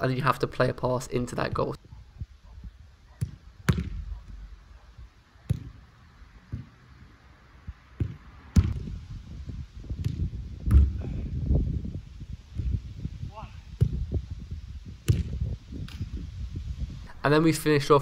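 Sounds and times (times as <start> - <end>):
football kick thuds: 3.2 - 4.6, 5.4 - 5.9, 6.5 - 6.8, 7.6 - 9.0, 9.9 - 11.1, 13.8 - 14.2, 15.0 - 16.0.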